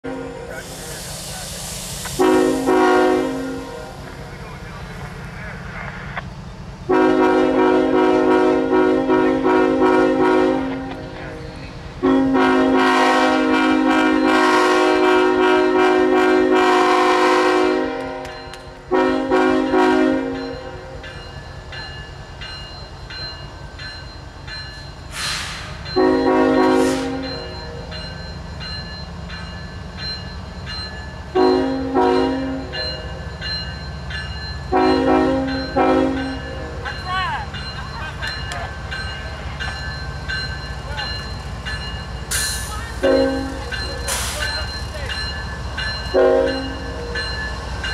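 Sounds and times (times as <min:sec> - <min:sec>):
locomotive air horn blasts: 0:00.0 - 0:00.5, 0:02.2 - 0:04.0, 0:06.9 - 0:11.2, 0:12.0 - 0:20.7, 0:25.2 - 0:27.3, 0:31.4 - 0:32.8, 0:34.7 - 0:36.4, 0:46.1 - 0:47.1
diesel engine rumbling: 0:00.0 - 0:12.9.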